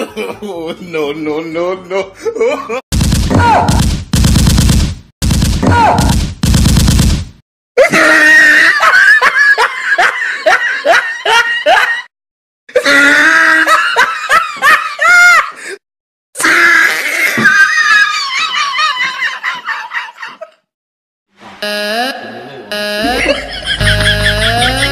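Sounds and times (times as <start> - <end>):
automatic gunfire sound effect: 2.9 - 7.4
loud laughter: 7.8 - 12.1, 12.8 - 15.6, 17.3 - 20.6, 23.0 - 24.9.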